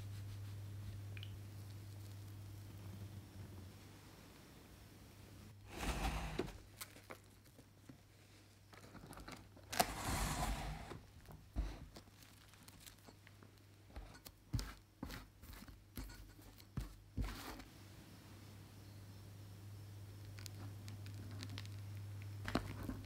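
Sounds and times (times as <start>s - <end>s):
plastic film crinkling: 6.6s - 7.9s, 11.9s - 13.7s.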